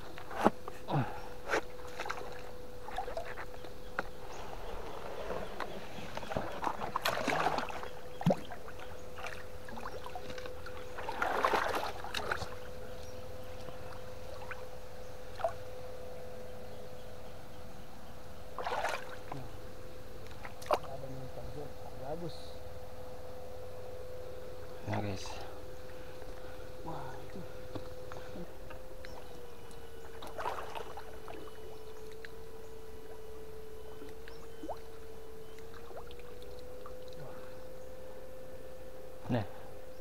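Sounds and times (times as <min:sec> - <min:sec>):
steady thin hum: 0:00.0 - 0:40.0
water splashing and sloshing: 0:01.4 - 0:15.7, 0:18.5 - 0:19.6, 0:20.2 - 0:21.0, 0:25.8 - 0:37.3.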